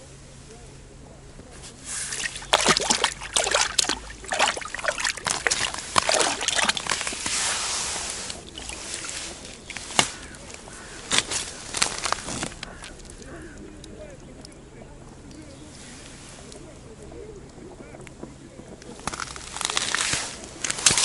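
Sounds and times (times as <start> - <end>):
fish splashing in water: 1.6 - 14.5, 18.7 - 21.0.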